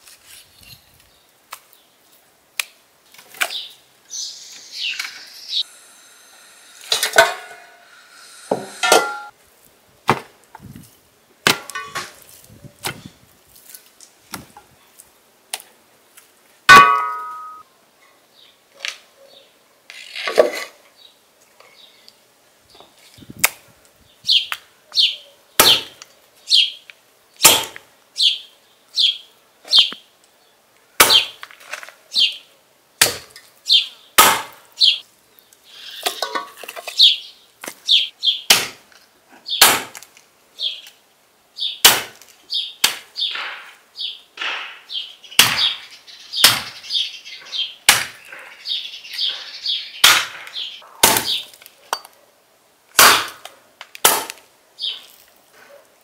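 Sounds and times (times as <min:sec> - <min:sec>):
cleaver chopping on wooden block: 0:53.0 - 0:53.4.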